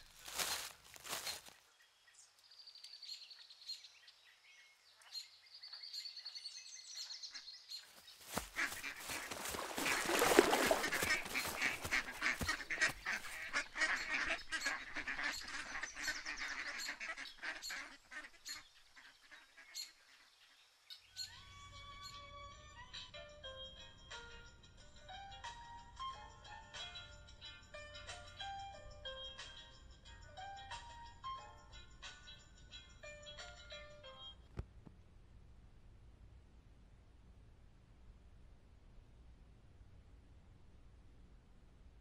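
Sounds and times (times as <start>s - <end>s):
waterfowl honking and quacking: 8.3s - 20.3s.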